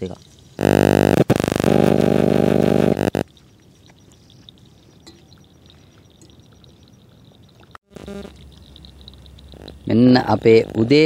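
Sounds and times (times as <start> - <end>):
small animals chirping: 3.2 - 11.0.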